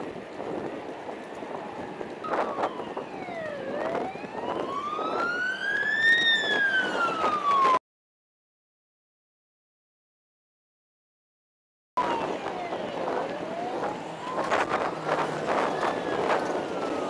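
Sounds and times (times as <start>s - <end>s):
road traffic noise: 0.0s - 7.8s, 12.0s - 17.0s
emergency siren wailing: 1.4s - 7.8s, 12.0s - 17.0s.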